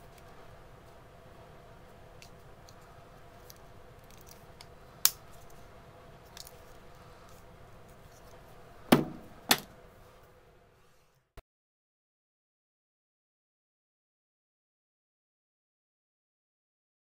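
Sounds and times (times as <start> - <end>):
faint steady hum: 0.0 - 11.4.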